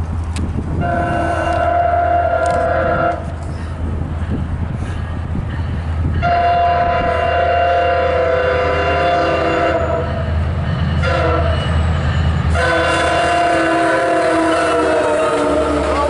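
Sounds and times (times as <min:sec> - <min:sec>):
locomotive air horn: 0:00.8 - 0:03.7, 0:06.2 - 0:10.3, 0:11.0 - 0:11.8, 0:12.5 - 0:16.0.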